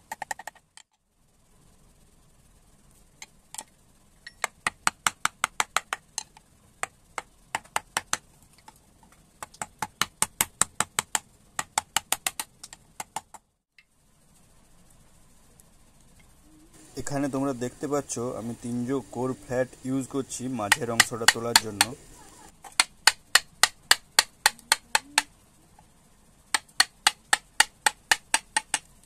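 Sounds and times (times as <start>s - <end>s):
wooden mallet tapping gouge: 20.6s - 22.1s, 26.5s - 28.9s.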